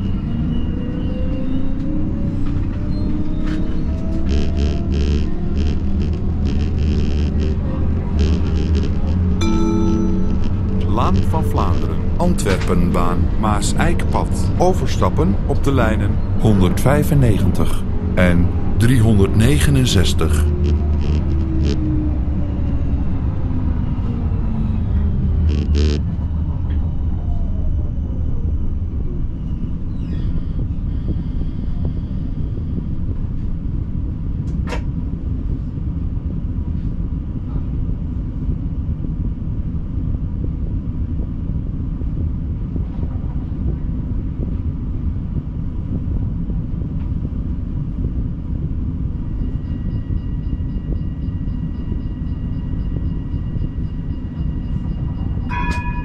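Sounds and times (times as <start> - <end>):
tram motor whine: 0.0 - 56.0
steady low rumble: 2.0 - 56.0
quick ticking: 4.2 - 9.4, 20.4 - 21.9
faint steady tone: 4.2 - 13.2.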